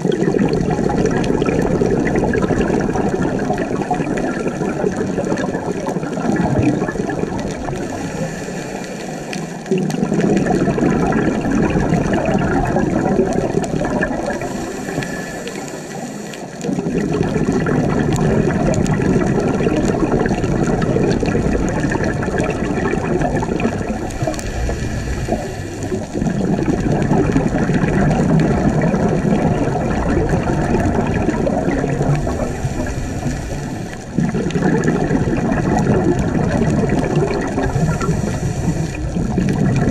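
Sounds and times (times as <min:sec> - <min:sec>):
exhaled air bubbling: 0:00.0 - 0:39.9
regulator inhale hiss: 0:07.8 - 0:09.7, 0:14.3 - 0:16.6, 0:24.1 - 0:26.2, 0:32.2 - 0:34.2, 0:37.7 - 0:39.2.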